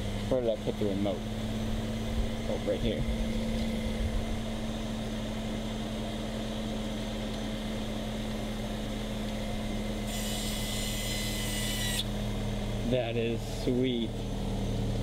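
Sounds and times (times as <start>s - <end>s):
car idling: 0.0s - 10.1s, 11.4s - 15.0s
small electric motor whirring: 10.0s - 12.2s.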